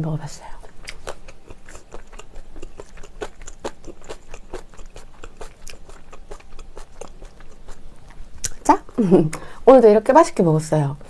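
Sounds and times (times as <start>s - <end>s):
person chewing food: 0.5s - 9.0s.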